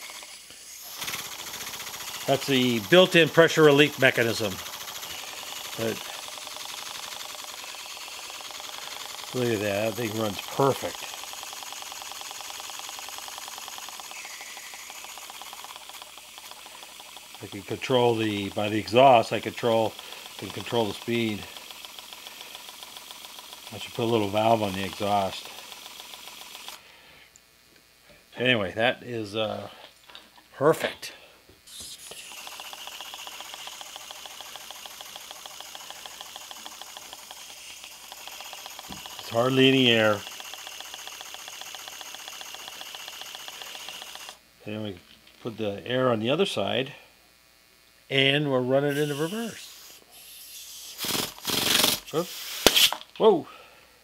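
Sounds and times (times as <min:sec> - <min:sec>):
model steam engine chuffing: 0:00.0 - 0:26.8, 0:32.2 - 0:44.4.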